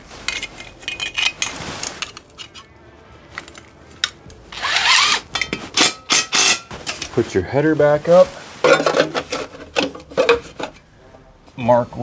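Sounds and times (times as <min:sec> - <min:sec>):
cordless drill driving screws into metal: 0:04.6 - 0:05.3.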